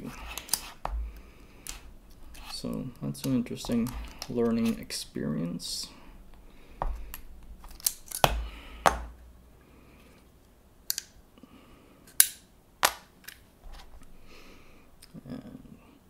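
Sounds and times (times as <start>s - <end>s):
small metal parts clicking: 7.1s - 8.4s.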